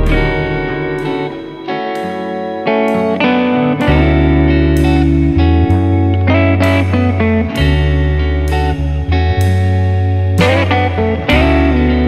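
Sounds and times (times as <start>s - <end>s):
low bass note: 0.0s - 1.7s
plucked guitar melody: 0.0s - 12.0s.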